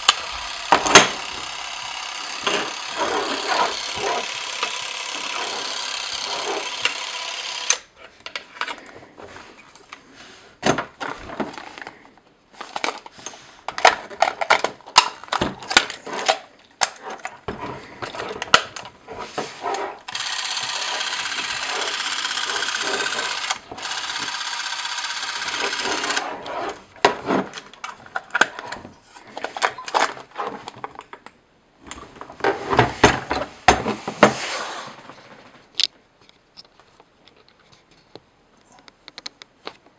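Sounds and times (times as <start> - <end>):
camera motor whirring: 0.0 - 7.9, 20.1 - 26.3
camera being handled: 12.6 - 18.9, 20.1 - 26.3.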